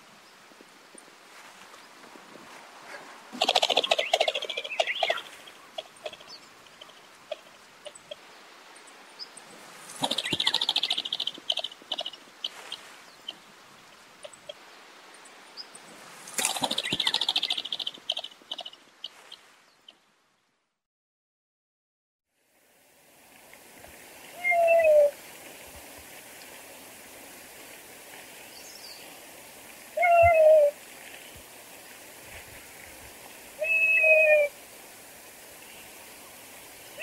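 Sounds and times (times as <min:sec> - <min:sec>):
pheasant rattling call: 0:03.4 - 0:14.6, 0:16.3 - 0:19.4.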